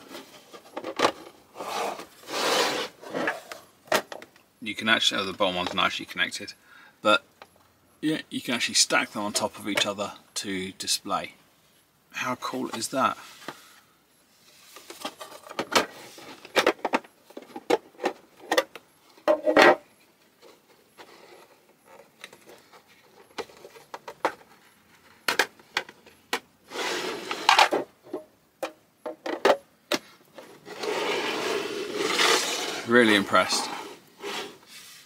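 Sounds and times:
plastic scraping rubs: 0.0 - 3.7, 20.4 - 28.2, 30.0 - 35.0
plastic cases clicking and knocking: 22.0 - 26.5, 27.4 - 30.5.

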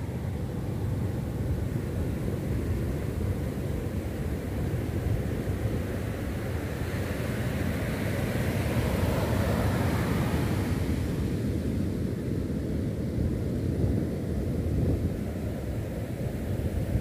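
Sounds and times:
wind rumble on microphone: 0.0 - 17.0
ocean surf breaking: 6.1 - 11.3.

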